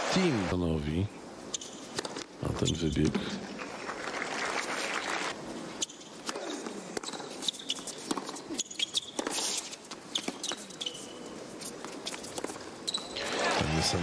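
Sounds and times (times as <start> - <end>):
shoes squeaking on a hard court: 1.5 - 3.2, 5.7 - 13.4
tennis ball bouncing: 1.6 - 2.3, 5.8 - 11.0.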